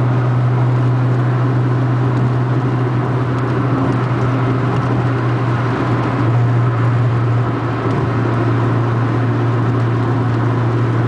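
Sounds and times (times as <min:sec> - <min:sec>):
low engine drone: 0:00.0 - 0:11.0
road and wind noise: 0:00.0 - 0:11.0.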